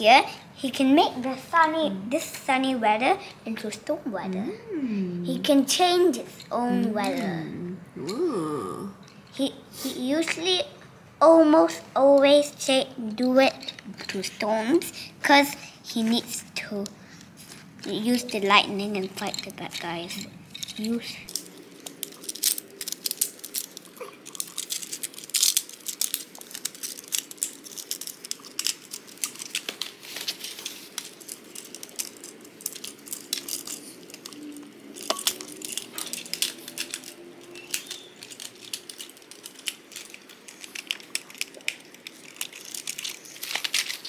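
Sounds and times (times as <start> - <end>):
plastic toy clicks and rattles: 12.1 - 16.9, 17.8 - 44.0.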